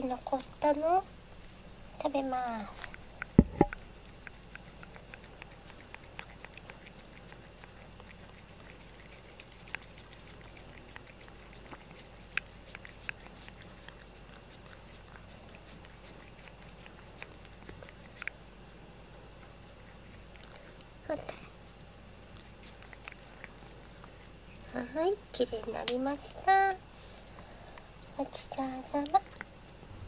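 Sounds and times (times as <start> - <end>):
cat licking spoon: 2.8 - 18.4, 19.7 - 20.8, 22.3 - 24.3.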